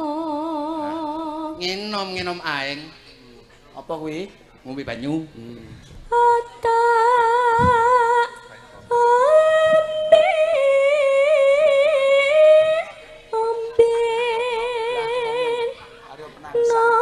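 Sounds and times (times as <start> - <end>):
woman singing with vibrato: 0.0 - 1.6, 6.0 - 17.0.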